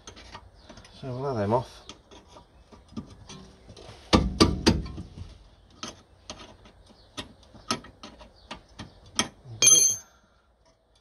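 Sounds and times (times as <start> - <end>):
metallic clink: 9.6 - 10.1.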